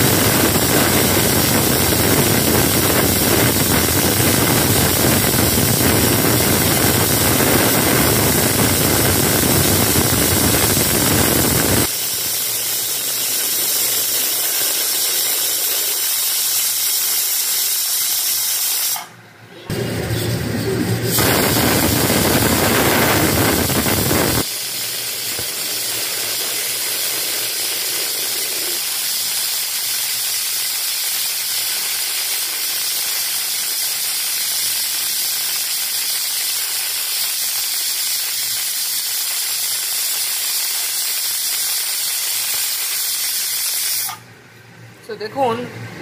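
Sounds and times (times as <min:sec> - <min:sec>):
pressure cooker whistle hissing: 0:00.0 - 0:19.2, 0:21.1 - 0:44.3.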